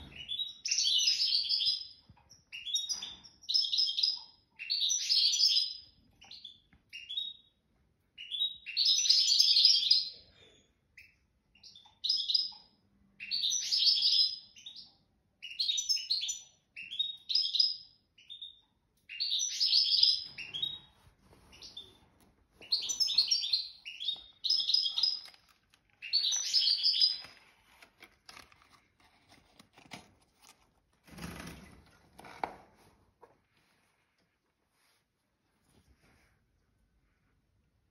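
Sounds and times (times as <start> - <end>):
songbird twittering: 26.0 - 27.3.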